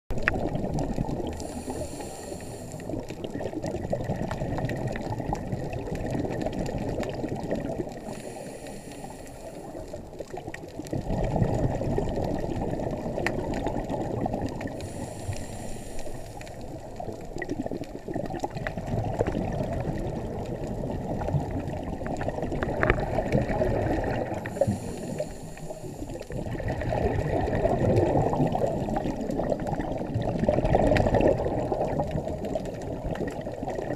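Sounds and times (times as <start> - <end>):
exhaled bubbles rumbling: 0.1 - 33.9
diver inhaling through regulator: 1.3 - 3.2, 8.0 - 10.0, 14.7 - 16.7, 24.2 - 26.5.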